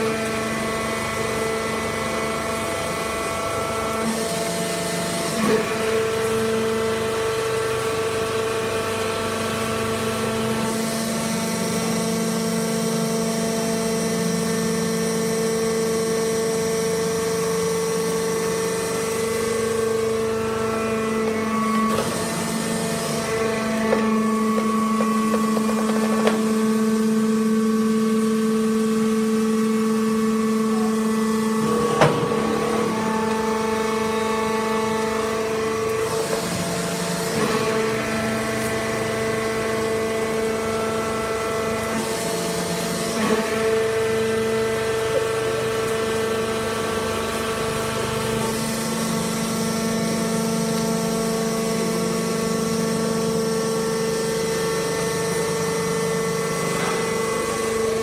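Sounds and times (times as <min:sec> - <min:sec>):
hydraulic press humming: 0:00.0 - 0:58.0
machine knocks: 0:31.8 - 0:33.5.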